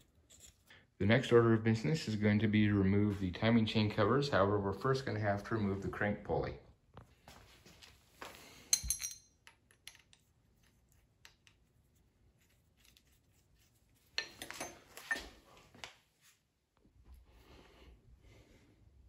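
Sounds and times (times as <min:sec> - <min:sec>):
metal tool clinking: 0:08.6 - 0:10.2, 0:14.2 - 0:15.4.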